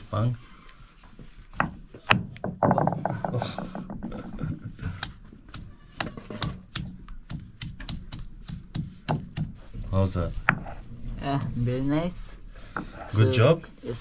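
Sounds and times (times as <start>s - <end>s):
stone knocking and grinding on stone: 1.5s - 10.8s.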